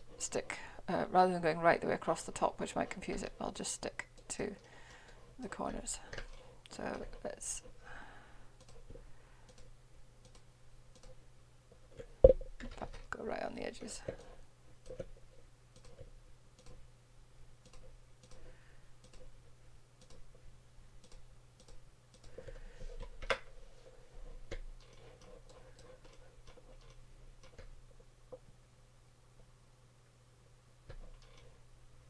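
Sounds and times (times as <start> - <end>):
computer mouse clicks: 8.6 - 8.9, 9.5 - 11.2, 15.7 - 16.8, 17.6 - 19.3, 20.0 - 20.2, 21.0 - 23.5, 24.5 - 27.8.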